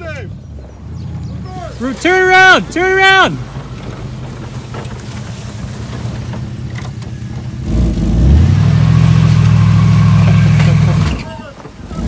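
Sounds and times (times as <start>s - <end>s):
car engine revving: 6.9s - 12.0s.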